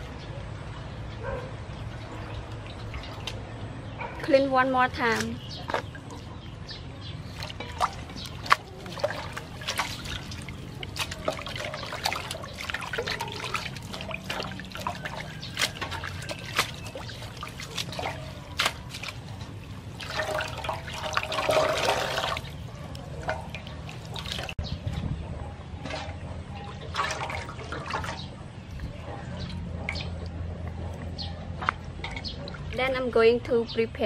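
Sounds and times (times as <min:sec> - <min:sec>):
hands washing in water basin: 0:01.6 - 0:03.6, 0:04.2 - 0:24.6, 0:25.8 - 0:33.1
running water: 0:07.2 - 0:24.6.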